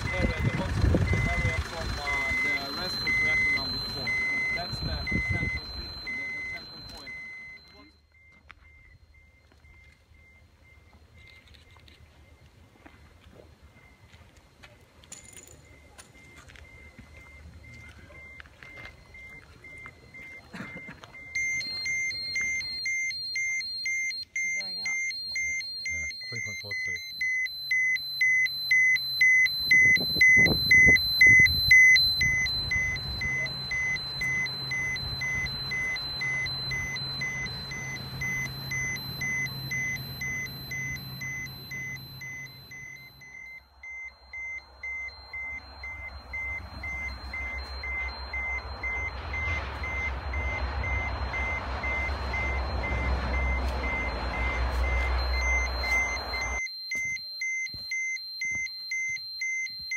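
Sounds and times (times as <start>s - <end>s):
geiger counter alarm beeping: 0.0s - 59.9s
low rumble: 29.7s - 56.6s.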